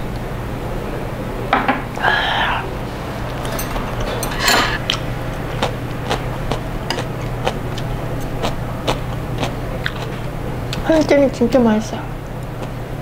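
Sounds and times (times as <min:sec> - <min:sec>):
low hum: 0:00.0 - 0:13.0
breathy exhale: 0:02.0 - 0:03.0
chopsticks scraping: 0:03.1 - 0:06.3
chopsticks clicking on plates: 0:05.6 - 0:10.8.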